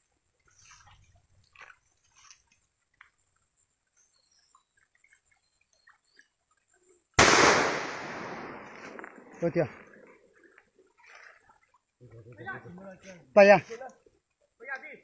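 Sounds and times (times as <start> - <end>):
hunting gun shot: 7.2 - 9.6.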